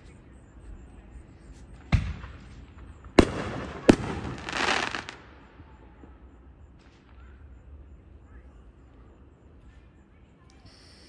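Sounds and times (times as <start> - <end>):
firework bangs: 1.9 - 5.4
firework crackling hiss: 3.6 - 5.2.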